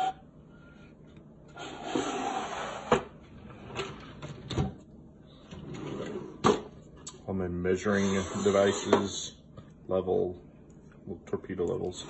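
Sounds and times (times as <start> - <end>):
wooden drawer sliding scrape: 1.6 - 4.7.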